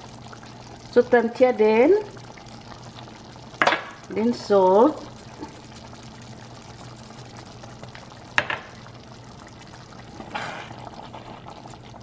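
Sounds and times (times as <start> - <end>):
porridge bubbling in a pot: 0.0 - 12.0
wooden spoon scraping a pot: 5.0 - 6.1, 10.1 - 11.9.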